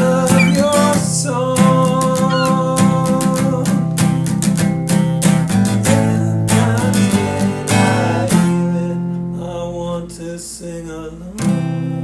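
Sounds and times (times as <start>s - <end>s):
strummed acoustic guitar: 0.0s - 9.4s
person singing: 0.3s - 1.0s, 2.2s - 2.8s.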